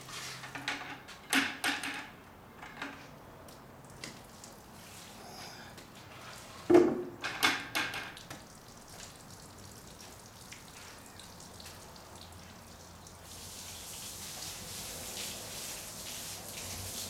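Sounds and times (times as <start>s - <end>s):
water splashing on car: 8.2s - 17.0s.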